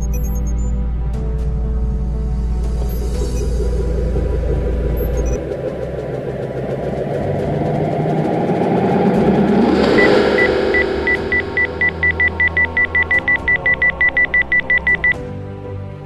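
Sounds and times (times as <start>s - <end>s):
high electronic beeps: 0.0s - 0.7s, 2.9s - 3.6s, 4.8s - 6.0s, 9.6s - 15.2s
deep rising rumble: 1.2s - 15.1s.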